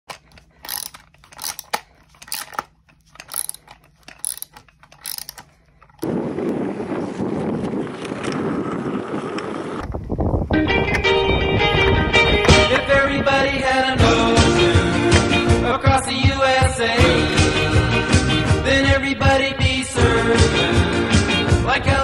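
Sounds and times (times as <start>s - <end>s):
ratchet tool clicking: 0.1s - 6.0s
music: 10.5s - 22.0s.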